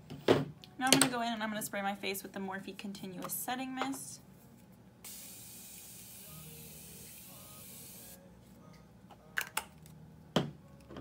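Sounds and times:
spray bottle hissing mist: 5.1 - 8.2.

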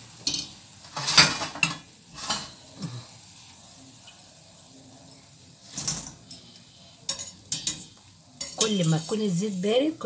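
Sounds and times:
frying oil hissing: 0.0 - 10.0
wire skimmer scraping frying pan: 0.2 - 2.6, 5.6 - 10.0.

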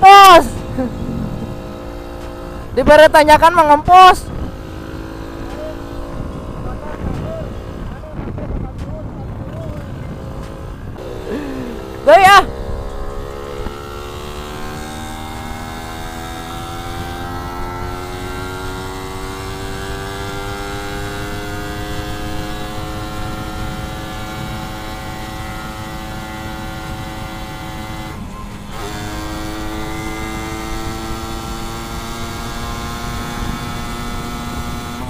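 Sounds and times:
motorcycle engine under load: 0.5 - 2.8, 8.8 - 35.0
wind rumble on microphone: 0.6 - 3.2, 3.8 - 11.1, 21.2 - 28.8, 31.4 - 35.0.

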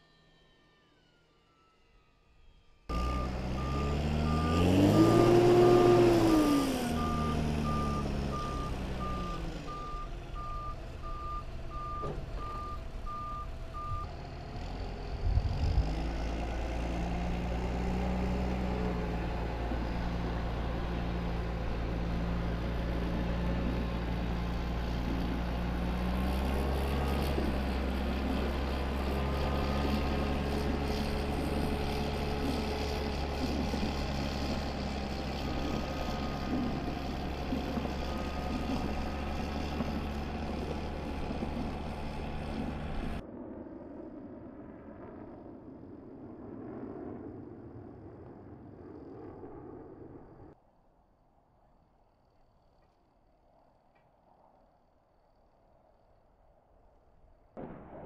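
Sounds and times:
engines running: 0.0 - 43.3
reversing alarm beeping: 0.2 - 5.9, 6.9 - 14.1.

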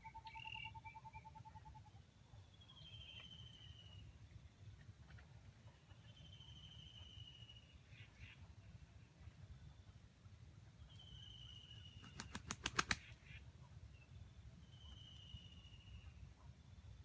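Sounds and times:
rooster wing claps: 12.0 - 13.2.

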